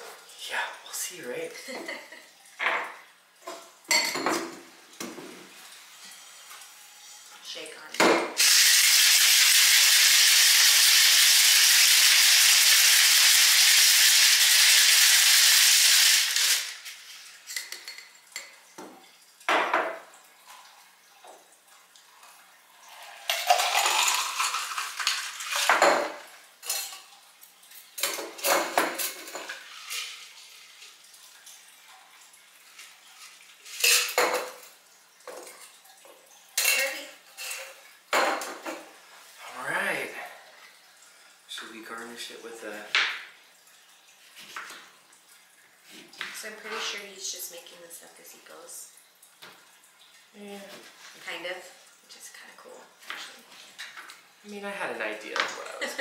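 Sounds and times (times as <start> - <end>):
drink pouring over ice: 22.8 - 25.9
ice rattling in cocktail shaker: 23.1 - 25.9.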